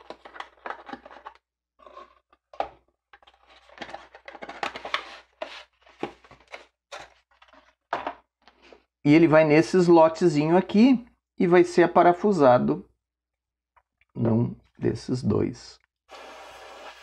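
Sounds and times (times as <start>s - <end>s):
packaging rustling and clicking: 0.0s - 8.1s.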